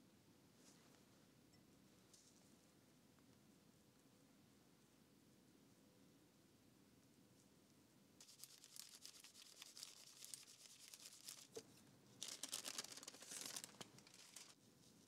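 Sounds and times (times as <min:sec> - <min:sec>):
paper tearing by hand: 0:08.2 - 0:11.6, 0:12.2 - 0:14.6.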